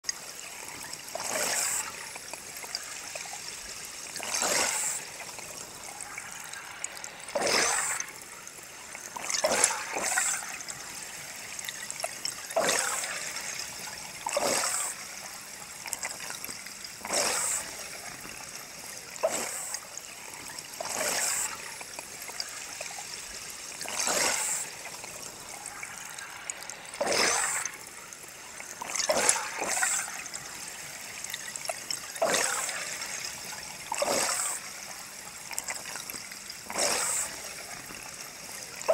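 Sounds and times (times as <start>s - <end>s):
steady underwater hiss: 0.1s - 38.9s
scuba regulator exhalation bubbles: 12.1s - 15.1s, 15.9s - 18.4s, 19.1s - 20.0s, 31.8s - 34.9s, 35.5s - 38.2s.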